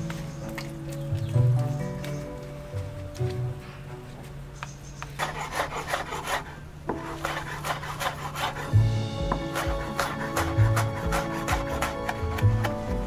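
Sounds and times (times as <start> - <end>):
soft background music: 0.0 - 13.0
fork mashing egg in plastic tub: 5.0 - 13.0
knife chopping on wooden board: 5.0 - 13.0.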